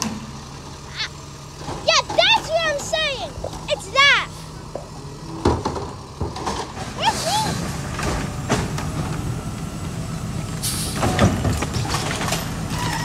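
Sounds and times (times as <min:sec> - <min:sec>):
garbage truck engine humming: 0:00.0 - 0:13.0
metal clanks and knocks: 0:04.7 - 0:07.0.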